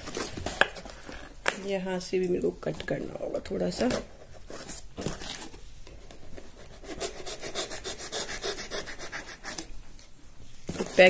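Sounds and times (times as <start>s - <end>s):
knife sawing through cardboard: 6.7s - 9.6s.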